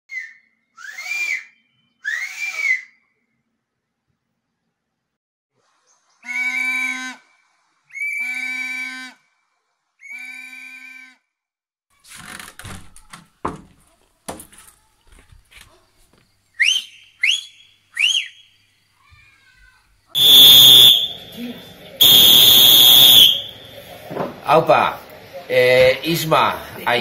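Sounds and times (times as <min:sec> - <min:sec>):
short rising whistles: 0:00.1 - 0:03.0, 0:07.9 - 0:08.5, 0:16.6 - 0:18.5, 0:22.0 - 0:23.6
long whistle blasts: 0:06.2 - 0:07.2, 0:07.9 - 0:09.1, 0:20.2 - 0:23.7
knocks and clatter: 0:12.3 - 0:15.7.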